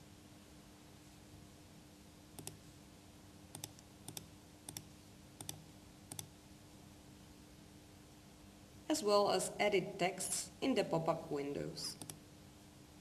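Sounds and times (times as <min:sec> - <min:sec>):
faint steady hum: 0:00.0 - 0:13.0
computer mouse clicking: 0:02.4 - 0:02.6, 0:03.5 - 0:06.3, 0:12.0 - 0:12.2.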